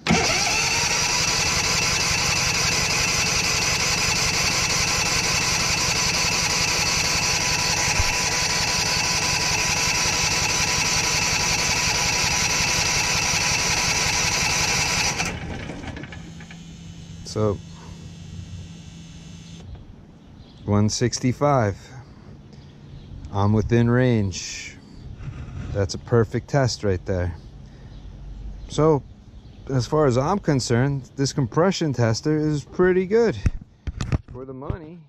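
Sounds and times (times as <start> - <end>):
engine cranking on electric starter: 0.0 - 19.7.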